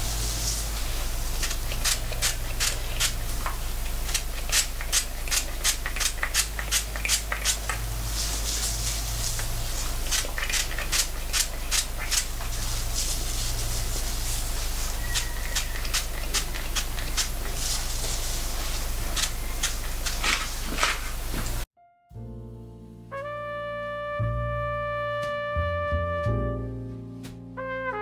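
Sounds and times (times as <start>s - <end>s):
spray bottle spritzing: 0.0s - 21.6s.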